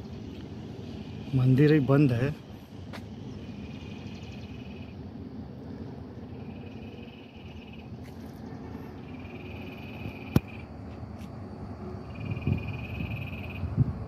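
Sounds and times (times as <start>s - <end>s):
steady low rumble: 0.0s - 14.0s
animal high pulsing trill: 6.2s - 10.7s, 12.0s - 13.8s
sharp click: 10.3s - 10.5s.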